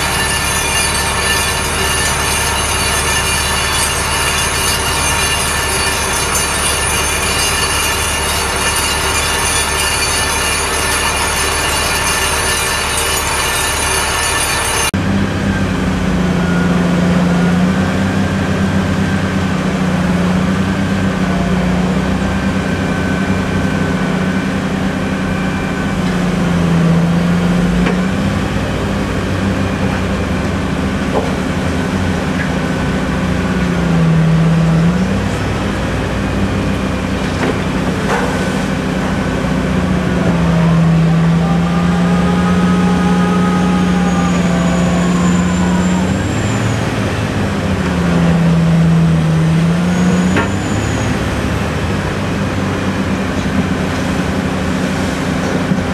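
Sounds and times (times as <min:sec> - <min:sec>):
buzzing mechanical rattle: 0:00.0 - 0:14.9
heavy diesel machinery engine drone: 0:00.0 - 0:55.9
faint high squeals: 0:40.4 - 0:47.6, 0:49.6 - 0:51.7.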